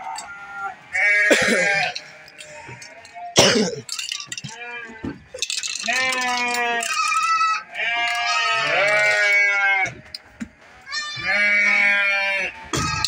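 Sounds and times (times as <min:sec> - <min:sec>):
goats bleating: 0:00.0 - 0:10.2, 0:10.8 - 0:13.0.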